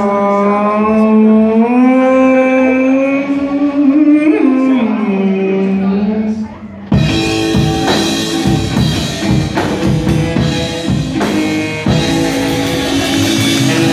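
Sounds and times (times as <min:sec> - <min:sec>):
rock and roll band playing: 0:06.9 - 0:13.9
steady drum strokes: 0:06.9 - 0:13.9.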